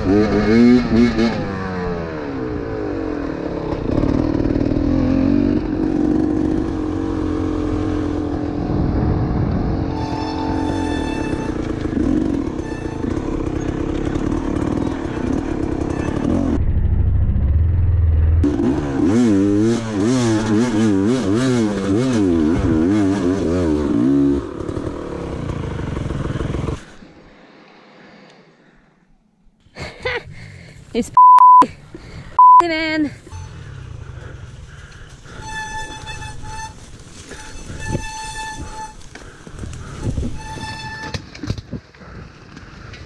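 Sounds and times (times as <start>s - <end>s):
dirt bike engine revving: 0.0s - 16.6s, 18.3s - 27.0s, 33.3s - 41.1s
loud electronic beep: 9.8s - 11.6s, 31.2s - 31.6s, 32.4s - 32.7s.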